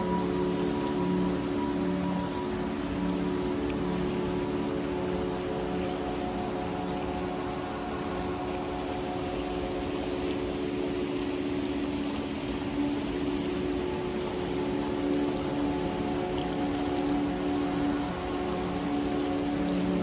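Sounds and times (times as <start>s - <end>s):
soft background music: 0.0s - 20.0s
stream murmuring over stones: 0.0s - 20.0s.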